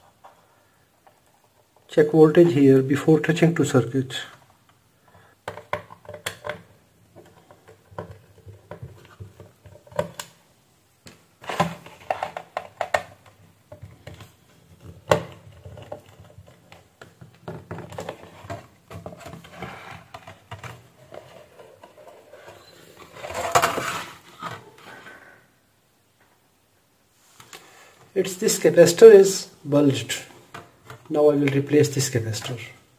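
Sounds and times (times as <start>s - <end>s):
plastic parts being handled: 4.1s - 10.4s, 11.0s - 25.2s.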